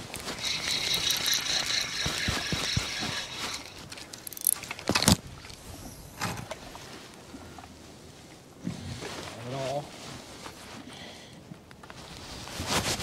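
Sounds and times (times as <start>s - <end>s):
fishing reel gear whirring: 0.1s - 4.8s.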